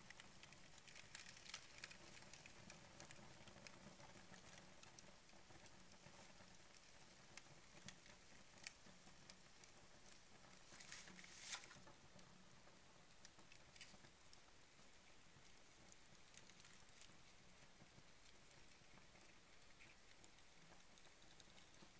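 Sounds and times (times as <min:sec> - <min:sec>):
paper and cardboard crackling: 0:10.6 - 0:12.0.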